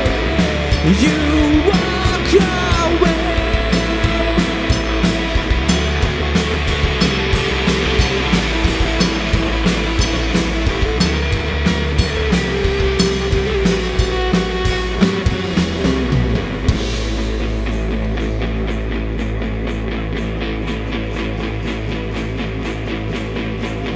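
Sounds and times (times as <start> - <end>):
cymbals struck in a steady beat: 0.0 - 18.0
drum kit: 0.0 - 19.9
bass guitar: 0.0 - 23.9
electric guitar: 0.0 - 23.9.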